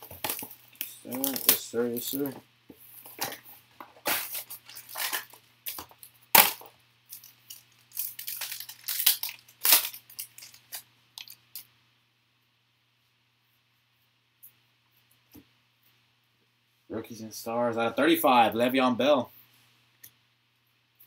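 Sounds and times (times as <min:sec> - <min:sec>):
packaging crinkling and tearing: 0:00.0 - 0:02.4, 0:03.0 - 0:11.6.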